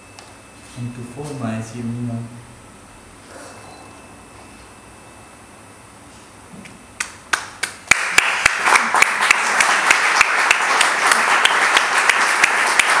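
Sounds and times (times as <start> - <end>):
audience applause: 7.9 - 13.0.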